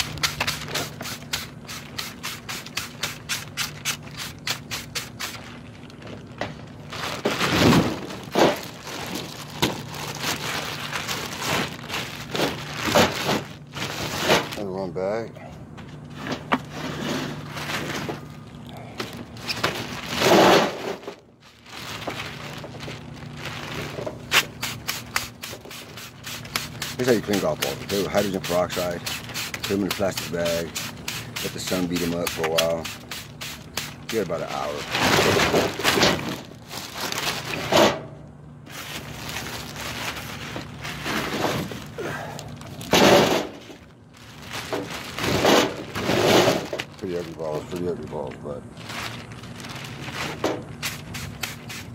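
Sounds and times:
plastic bag crinkling: 0.0s - 14.9s, 17.4s - 37.7s, 38.6s - 51.4s.

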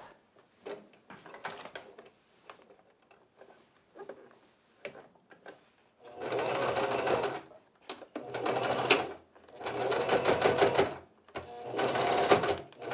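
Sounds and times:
sewing machine stitching: 6.0s - 7.5s, 8.1s - 12.9s.

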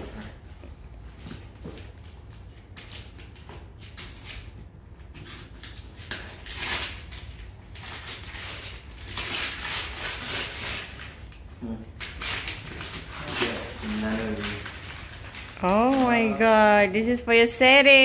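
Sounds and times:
wrapping paper tearing: 5.4s - 16.6s.

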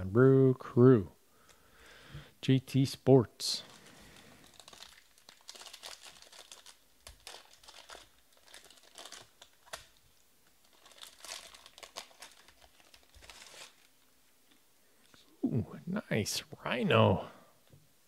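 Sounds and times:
foil wrapper crinkling and tearing: 3.6s - 14.0s.

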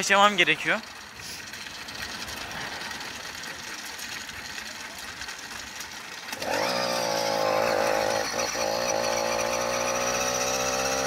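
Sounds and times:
wind: 0.0s - 11.0s
small engine buzzing: 0.8s - 11.0s.

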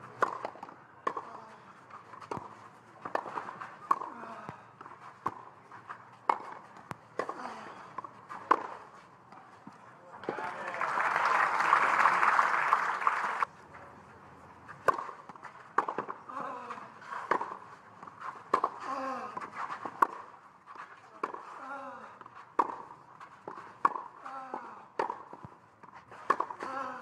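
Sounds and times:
tennis ball bouncing on court: 0.2s - 1.4s, 2.1s - 10.4s, 14.8s - 21.6s, 22.2s - 26.8s
spectators applauding: 10.2s - 13.5s.

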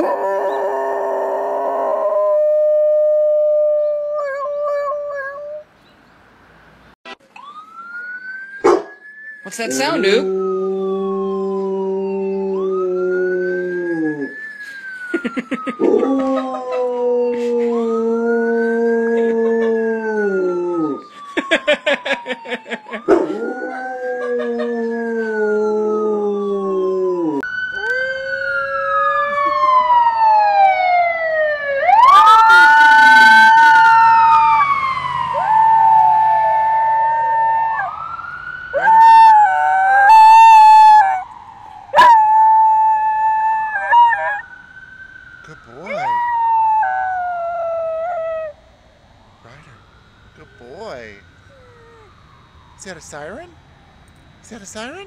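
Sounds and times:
dog howling: 0.0s - 5.6s, 15.8s - 21.0s, 22.9s - 29.7s, 38.7s - 41.2s, 41.9s - 44.4s, 45.8s - 48.6s, 51.4s - 52.2s
siren wailing: 0.0s - 5.7s, 7.2s - 55.0s
dog yipping: 8.6s - 9.0s.

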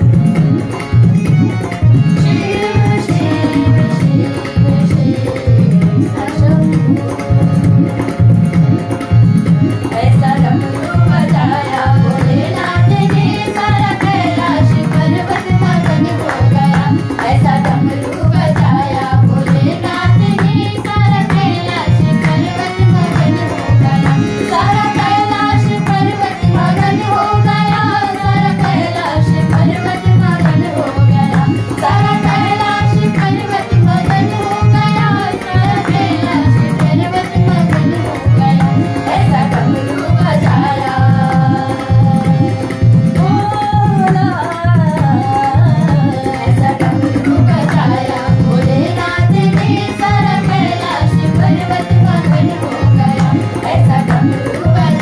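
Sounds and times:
women singing: 0.0s - 8.1s, 9.6s - 55.0s
harmonium: 0.0s - 55.0s
hand clapping: 12.1s - 18.8s, 46.9s - 48.4s.

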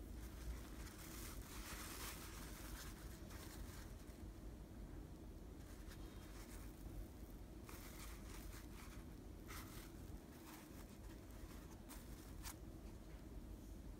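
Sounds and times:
low steady hum: 0.0s - 13.9s
cloth pouch rustling: 0.2s - 4.2s, 7.6s - 12.6s.

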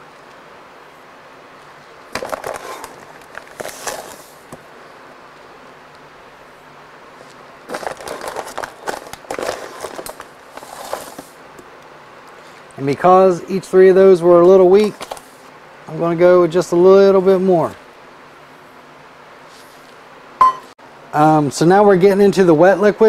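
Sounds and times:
cup scooping sugar: 7.7s - 11.4s.

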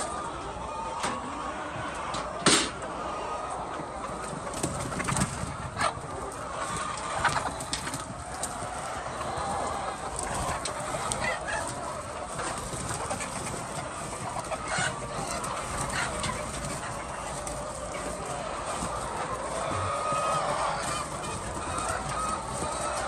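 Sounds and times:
flock of hens clucking: 0.0s - 23.0s.

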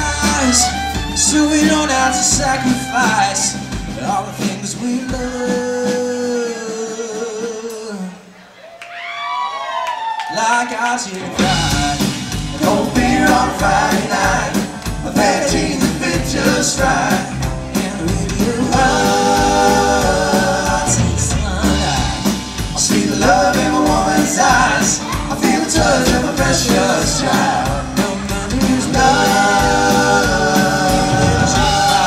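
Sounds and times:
fiddle: 0.0s - 4.4s
bass: 0.0s - 6.6s, 11.2s - 32.0s
drums: 0.0s - 8.4s, 9.9s - 32.0s.

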